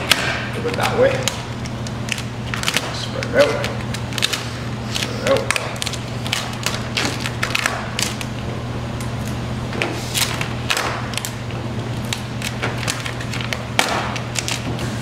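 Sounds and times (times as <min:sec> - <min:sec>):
steady low hum: 0:00.0 - 0:15.0
vinyl film crackling and rustling: 0:11.1 - 0:15.0.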